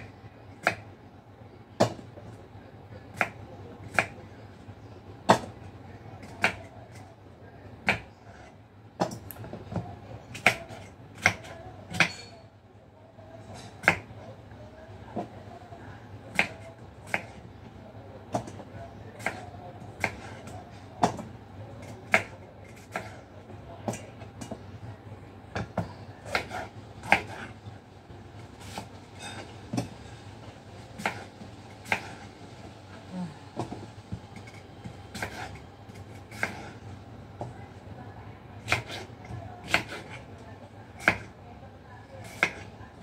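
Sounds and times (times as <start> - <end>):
knife cutting on cutting board: 34.4 - 36.8.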